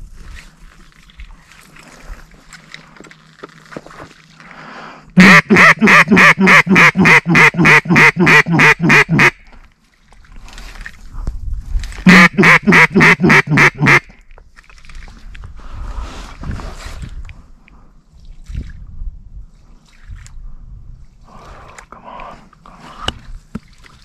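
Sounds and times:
duck call quacks: 5.2s - 9.4s, 12.1s - 14.1s.

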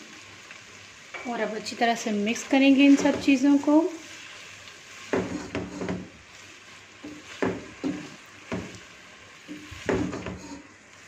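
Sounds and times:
faint frying sizzle: 0.0s - 11.0s
spatula scraping pan: 2.4s - 10.8s.

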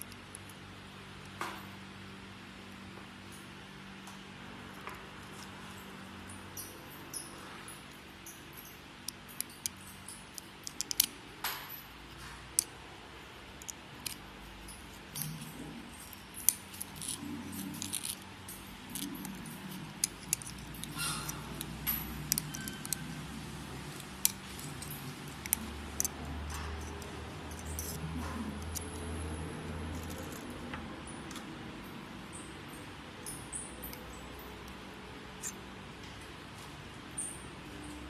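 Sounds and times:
metal pick clicking on metal parts: 8.6s - 12.8s, 13.5s - 31.5s.

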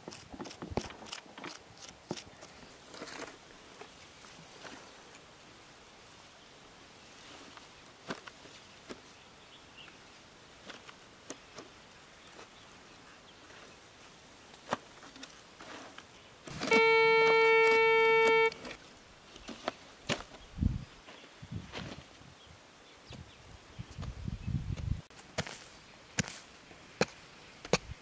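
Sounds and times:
metal detector high-pitched tone: 16.5s - 18.6s.

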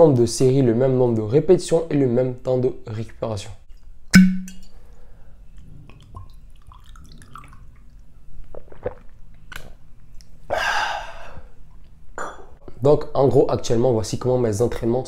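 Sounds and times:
sharp knock: 4.2s - 4.6s
person swallowing water: 8.5s - 9.7s.

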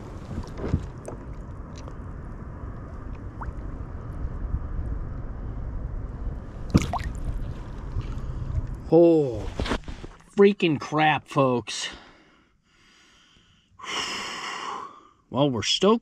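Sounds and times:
water sloshing: 6.6s - 8.1s
sharp splash of fish: 6.7s - 7.2s.

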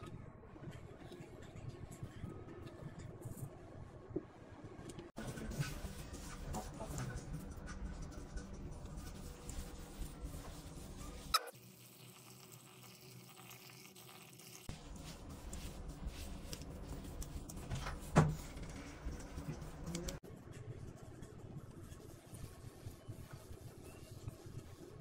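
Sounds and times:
rustling and squishing mixture: 5.0s - 25.0s.

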